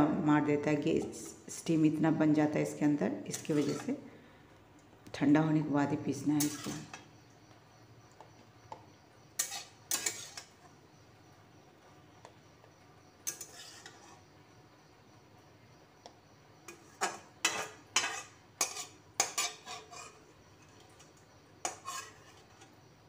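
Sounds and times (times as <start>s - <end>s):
metal spatula scraping metal pan: 3.3s - 4.0s, 6.4s - 7.0s, 9.4s - 10.6s, 13.2s - 14.2s, 16.7s - 22.7s.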